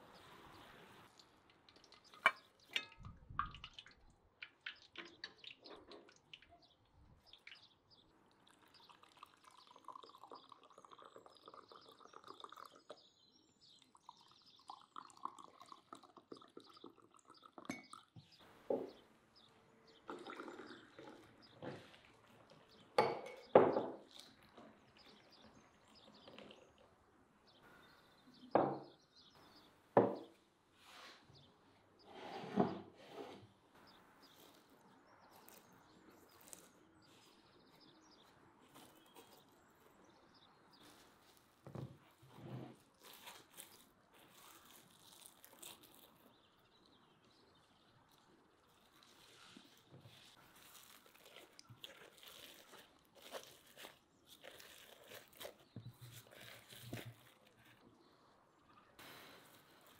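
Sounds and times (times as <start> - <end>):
tea pouring into glasses: 8.3 - 18.2, 20.0 - 21.8
glass and dishes knocking on table: 23.0 - 24.0.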